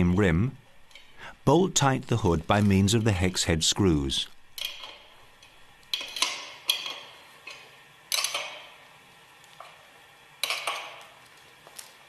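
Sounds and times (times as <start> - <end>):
wrench clinking on screw: 4.6 - 5.0.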